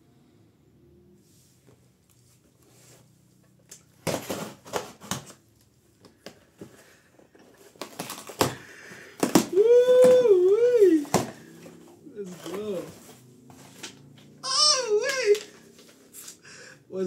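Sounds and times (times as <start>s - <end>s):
packaging being torn open: 7.6s - 10.1s.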